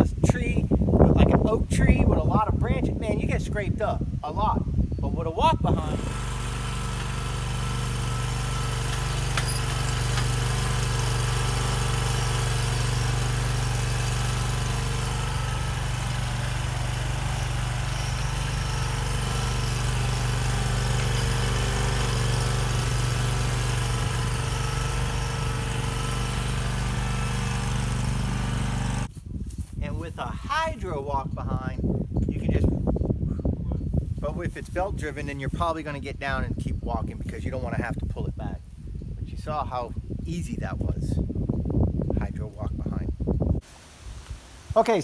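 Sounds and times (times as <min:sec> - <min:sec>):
lawn mower engine running: 0:05.7 - 0:29.1.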